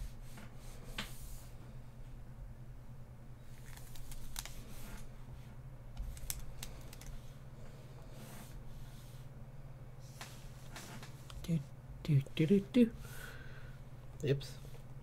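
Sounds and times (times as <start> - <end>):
steady low hum: 0.0 - 15.0
keyboard keys clicking: 6.0 - 7.1.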